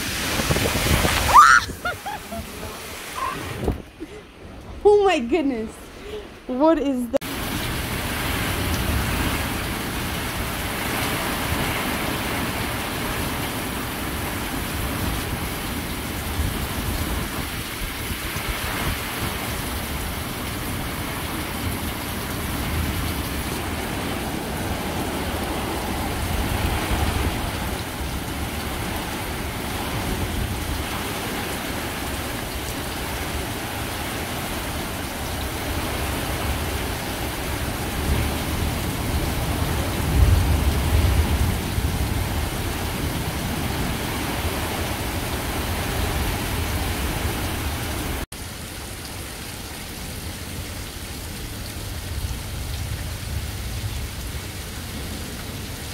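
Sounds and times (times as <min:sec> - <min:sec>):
heavy rain pouring: 0:00.0 - 0:06.5, 0:07.2 - 0:55.9
thunder rumbling: 0:35.4 - 0:48.2.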